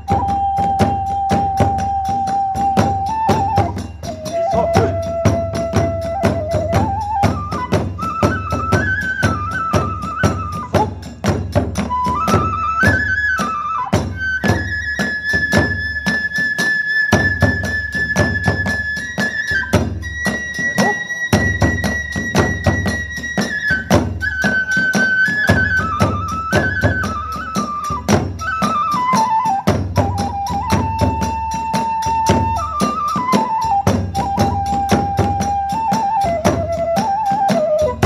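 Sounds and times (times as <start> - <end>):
bamboo flute melody: 0.0 - 38.0
drums beating: 0.0 - 38.0
hand cymbals striking: 14.9 - 28.9.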